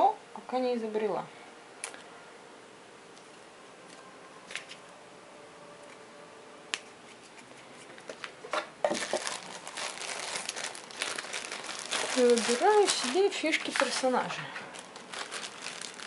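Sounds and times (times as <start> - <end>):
plastic bag crinkling: 8.8 - 16.0.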